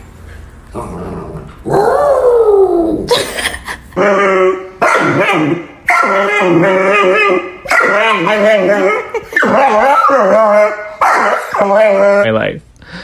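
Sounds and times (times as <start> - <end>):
dog howling: 1.7 - 3.1, 4.0 - 12.3.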